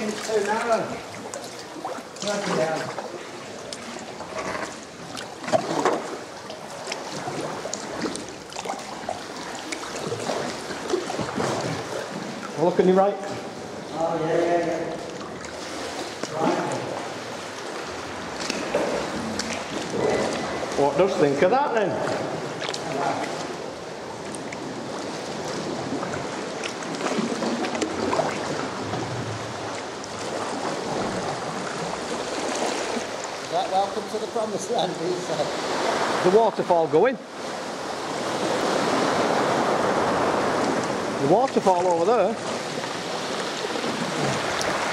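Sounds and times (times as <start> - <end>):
small water ticks: 0.0 - 12.6, 16.2 - 16.4, 17.5 - 20.8, 22.0 - 23.6, 24.2 - 29.0, 44.4 - 44.9
paddle stroke splashes: 0.0 - 36.4, 37.3 - 44.9
water lapping against hulls and rocks: 0.0 - 44.9.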